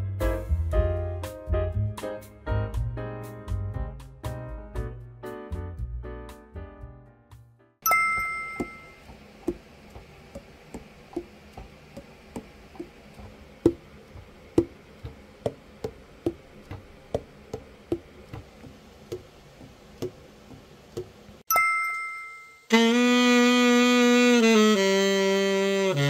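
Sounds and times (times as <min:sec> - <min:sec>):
two-tone chime: 0:07.8 - 0:09.0, 0:21.5 - 0:22.7
saxophone key pads knocking: 0:08.1 - 0:21.2.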